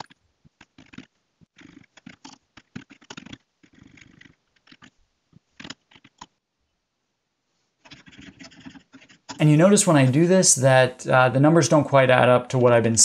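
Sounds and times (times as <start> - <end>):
typing on a computer keyboard: 7.9 - 9.4.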